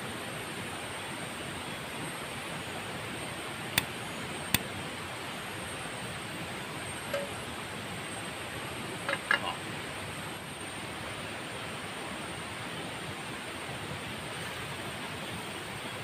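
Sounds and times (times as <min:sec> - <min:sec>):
steady background hiss: 0:00.0 - 0:16.0
stove igniter clicking: 0:03.8 - 0:04.7.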